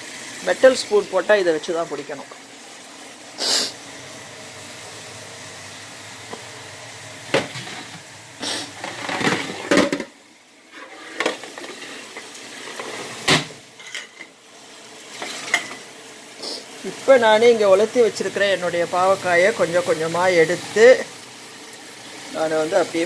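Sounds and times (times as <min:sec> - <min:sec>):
dishes and pans clattering: 0:07.3 - 0:08.0, 0:08.8 - 0:14.4, 0:15.1 - 0:15.9.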